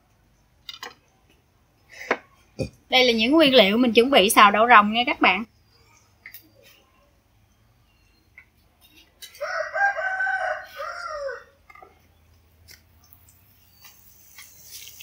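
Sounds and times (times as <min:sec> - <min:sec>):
rooster crowing: 0:09.3 - 0:11.6.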